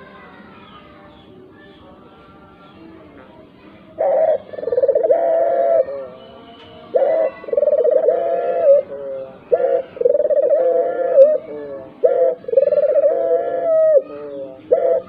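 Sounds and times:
dove cooing: 0:04.0 - 0:15.0.

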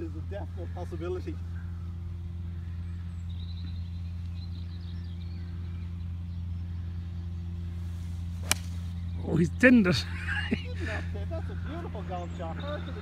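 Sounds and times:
low outdoor hum: 0:00.0 - 0:13.0.

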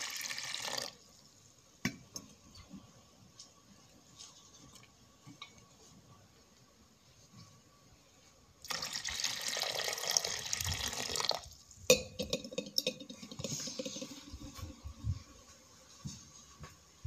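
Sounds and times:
water pouring into steel pot: 0:00.0 - 0:01.0, 0:08.6 - 0:11.6.

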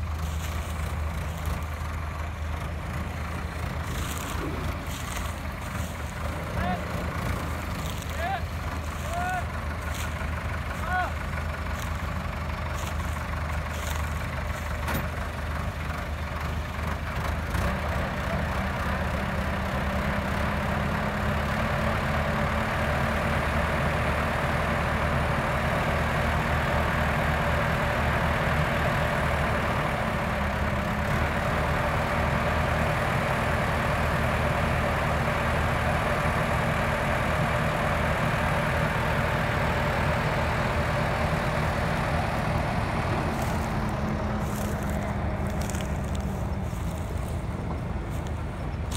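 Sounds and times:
harvester engine running: 0:00.0 - 0:48.9.

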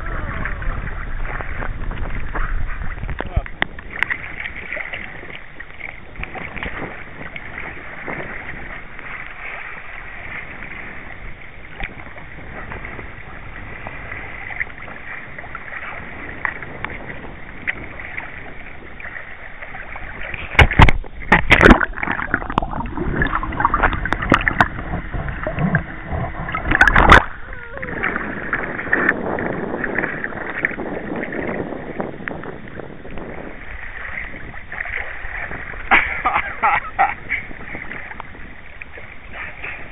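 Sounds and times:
water gurgling: 0:00.0 - 0:39.9
water lapping against kayak hull: 0:00.0 - 0:39.9
loud splashes and knocks: 0:19.0 - 0:27.4, 0:34.8 - 0:36.8.

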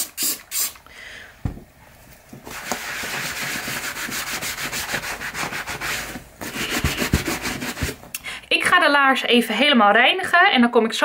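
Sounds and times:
sponge rubbing on leather boot: 0:02.5 - 0:08.0.

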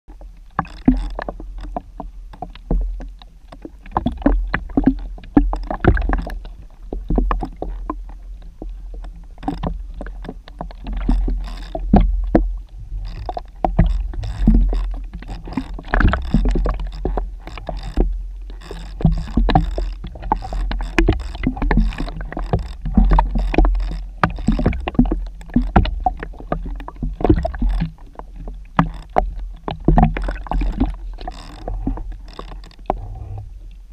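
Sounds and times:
underwater clicks and knocks: 0:00.1 - 0:33.9
underwater low rumble: 0:00.1 - 0:33.9.

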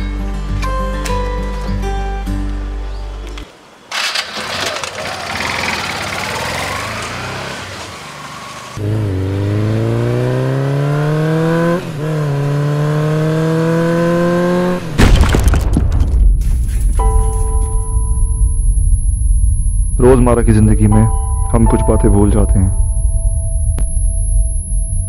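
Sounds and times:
motorcycle engine revving and accelerating: 0:04.0 - 0:15.0.

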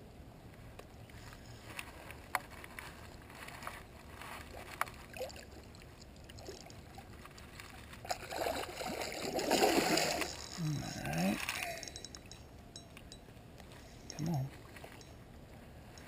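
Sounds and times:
fishing gear clicks and knocks: 0:01.7 - 0:08.2, 0:09.9 - 0:15.2
fish splashing at the surface: 0:08.0 - 0:10.6.

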